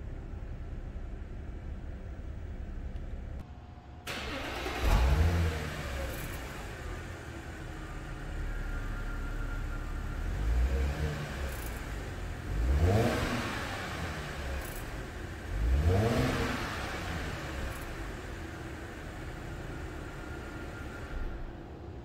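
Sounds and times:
car engine starting and idling: 0:00.0 - 0:22.0
car engine revving: 0:04.1 - 0:21.6.

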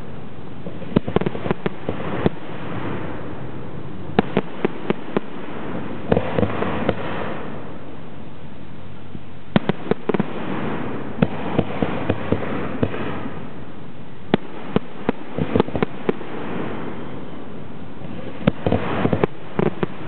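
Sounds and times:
steady background hiss: 0:00.0 - 0:20.0
firework shells bursting: 0:00.6 - 0:03.3, 0:04.1 - 0:07.8, 0:09.5 - 0:13.7, 0:14.3 - 0:17.1, 0:18.0 - 0:20.0.

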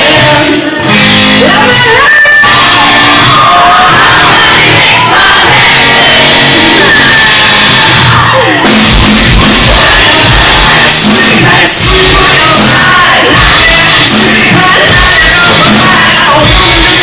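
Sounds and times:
distorted guitars: 0:00.0 - 0:17.0
live hard rock band: 0:00.0 - 0:17.0
low drum beat: 0:08.0 - 0:16.9
woman singing: 0:09.5 - 0:17.0.

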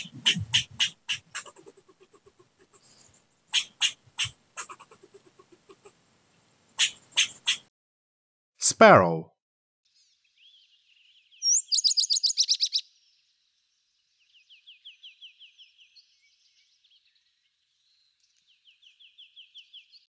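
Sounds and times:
sparrow chirping: 0:00.0 - 0:01.6, 0:06.8 - 0:07.6, 0:10.0 - 0:13.2, 0:14.1 - 0:20.0
sparrow trills: 0:09.9 - 0:13.3, 0:14.0 - 0:20.0.

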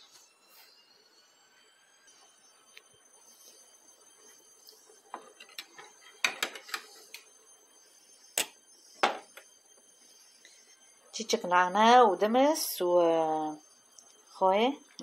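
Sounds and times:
kitchen items clicking and knocking: 0:05.1 - 0:07.2.

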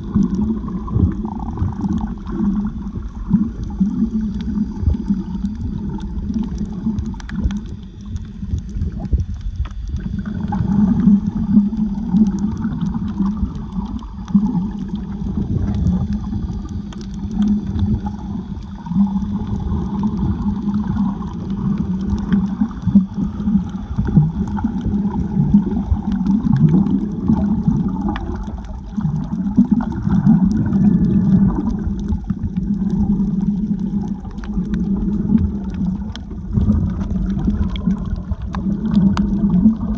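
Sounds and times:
water sloshing and gurgling: 0:00.0 - 0:39.9
faint scattered clicks: 0:05.1 - 0:10.1, 0:11.0 - 0:18.8.

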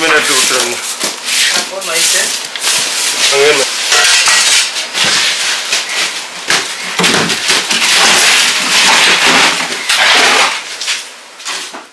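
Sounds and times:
fish crates clattering and knocking: 0:06.5 - 0:10.6.

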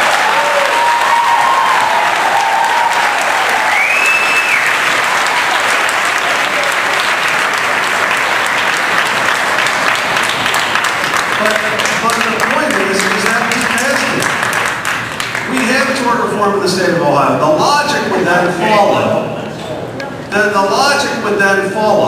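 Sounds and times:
audience applauding: 0:00.0 - 0:16.2.

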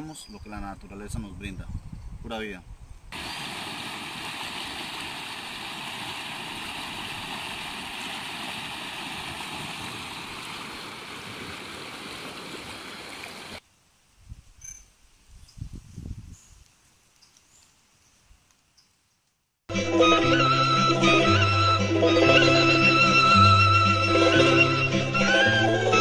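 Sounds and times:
river rushing over rapids: 0:03.2 - 0:13.6.

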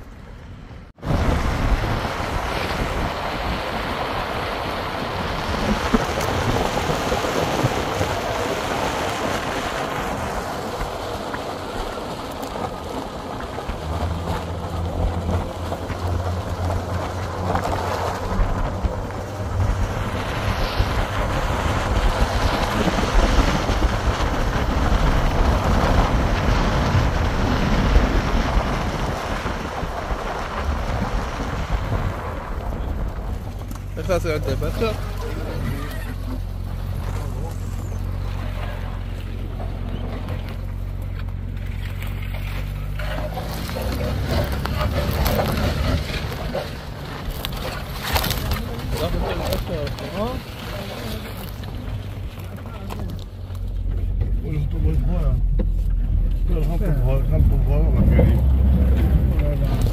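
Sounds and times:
low engine hum: 0:00.0 - 0:59.9
wind buffeting microphone: 0:00.9 - 0:41.0.

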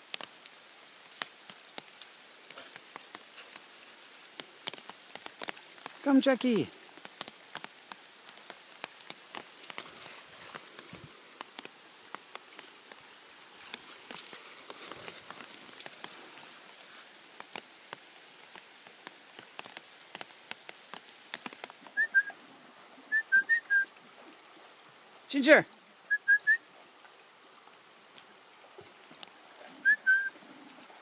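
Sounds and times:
footsteps crunching on gravel: 0:08.4 - 0:11.6, 0:13.6 - 0:17.2
person whistling two notes: 0:22.0 - 0:22.3, 0:23.1 - 0:23.9, 0:26.1 - 0:26.6, 0:29.8 - 0:30.3.

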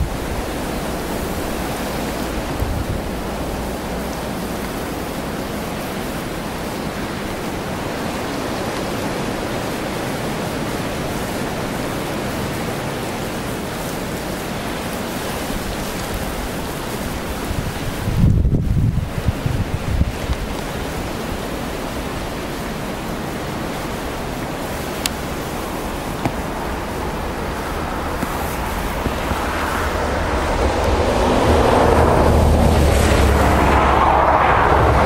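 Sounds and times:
wind buffet on microphone: 0:00.0 - 0:35.0
wind rushing: 0:17.0 - 0:35.0.

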